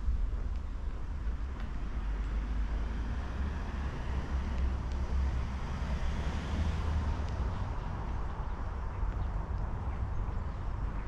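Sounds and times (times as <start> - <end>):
steady low rumble: 0.0 - 5.7
road traffic going by: 0.0 - 11.0
tyre and engine noise: 0.0 - 11.0.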